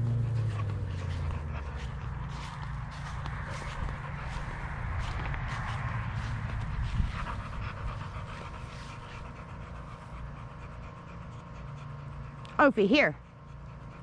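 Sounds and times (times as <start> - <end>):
dog panting: 0.0 - 14.0.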